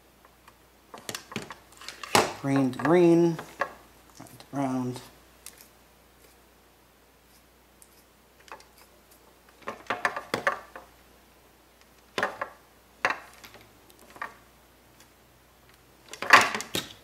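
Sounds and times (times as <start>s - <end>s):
small clicks and scrapes of wires: 5.4s - 6.4s, 7.3s - 10.1s, 13.3s - 17.0s.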